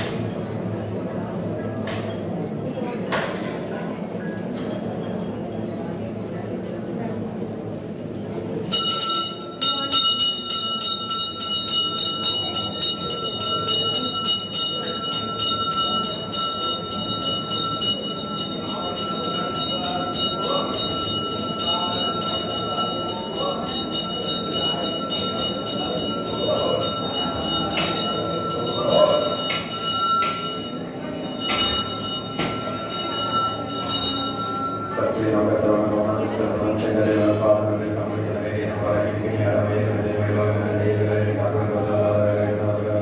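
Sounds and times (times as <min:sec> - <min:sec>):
murmur of voices reciting: 0:08.4 - 0:43.0
temple bell struck rapidly: 0:08.7 - 0:36.6.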